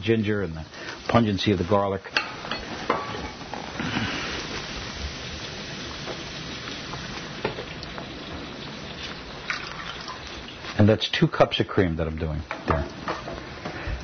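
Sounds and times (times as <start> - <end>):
steady sizzle: 0.0 - 14.0
cream pouring into pan: 3.5 - 10.8.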